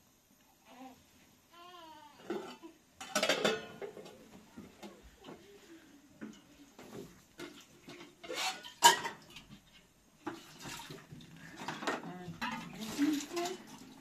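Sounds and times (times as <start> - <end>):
metal dishes clattering: 2.3 - 4.1, 7.4 - 9.5, 10.3 - 14.0.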